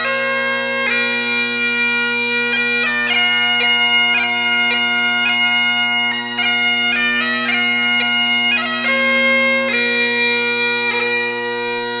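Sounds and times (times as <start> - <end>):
bagpipe chanter melody: 0.0 - 12.0
bagpipe drones: 0.0 - 12.0.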